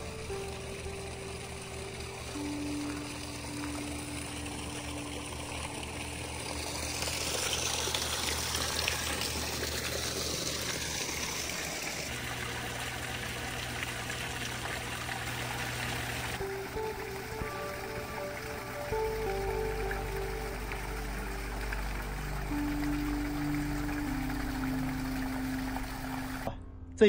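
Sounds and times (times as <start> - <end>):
running water trickling: 0.0 - 26.5
steady low hum: 12.0 - 27.0.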